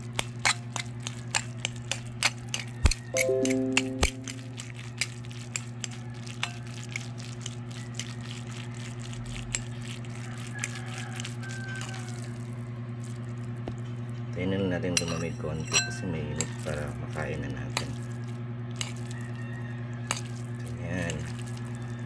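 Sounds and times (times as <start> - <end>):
fork stirring noodles in bowl: 0.1 - 3.6, 4.2 - 14.1, 15.0 - 19.5, 20.1 - 22.0
fork clicking against bowl: 0.2 - 6.6.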